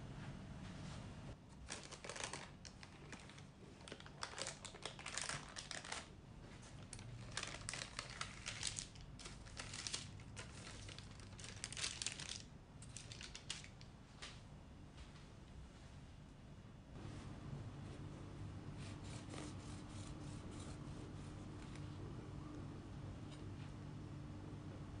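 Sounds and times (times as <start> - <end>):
parchment paper crinkling: 1.6 - 6.1, 6.8 - 13.9.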